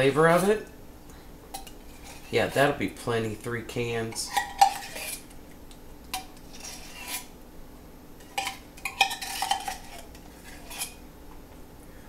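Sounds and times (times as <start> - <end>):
fork scraping inside a tin can: 1.9 - 2.5, 4.2 - 5.3, 6.2 - 7.3, 8.2 - 11.0.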